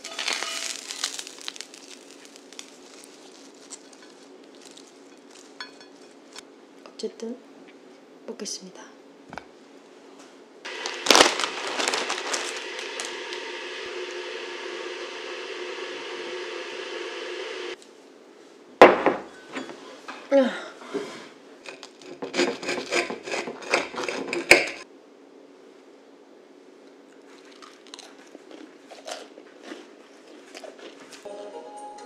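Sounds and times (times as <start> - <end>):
knife and fork on metal plate: 0.0 - 0.8, 5.1 - 6.2
steady noise: 10.7 - 17.8.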